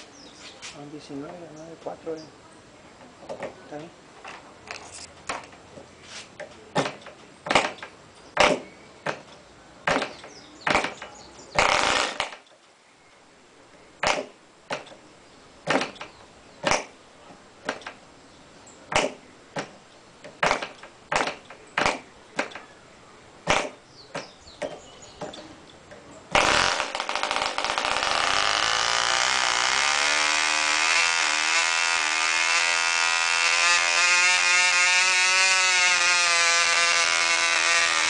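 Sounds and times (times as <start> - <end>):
model engine popping: 26.3 - 38.0.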